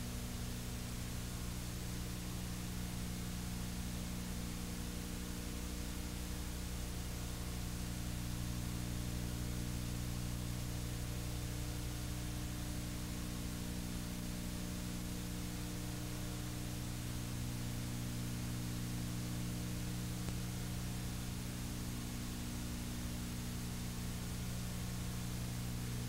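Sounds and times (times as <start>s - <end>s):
low electrical hum: 0.0s - 26.0s
tape hiss: 0.0s - 26.0s.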